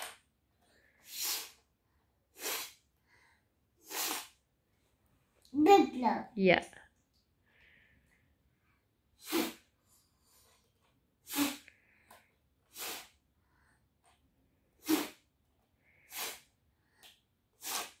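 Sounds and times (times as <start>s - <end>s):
child blowing through a straw: 0.8s - 4.5s, 9.1s - 13.6s, 14.6s - 18.0s.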